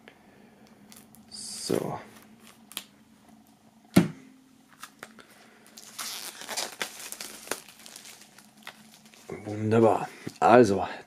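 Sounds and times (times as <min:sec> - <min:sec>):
plastic wrap tearing and crinkling: 0:00.9 - 0:01.2, 0:02.2 - 0:03.0, 0:04.7 - 0:09.3.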